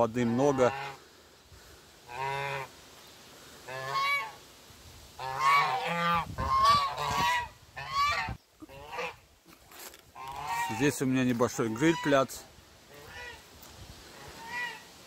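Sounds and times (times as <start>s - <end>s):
geese honking: 0.2s - 1.0s, 2.1s - 2.7s, 3.7s - 4.4s, 5.2s - 9.2s, 10.1s - 13.5s, 14.1s - 15.0s.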